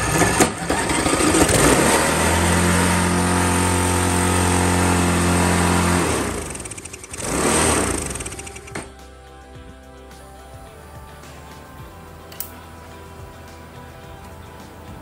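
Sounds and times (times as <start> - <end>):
lawn mower engine revving: 0.0 - 9.0.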